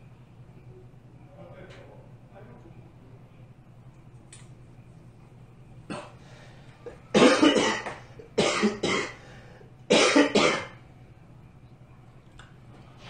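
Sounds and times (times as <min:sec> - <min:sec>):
man coughing hard: 0:07.1 - 0:09.2, 0:09.9 - 0:10.8.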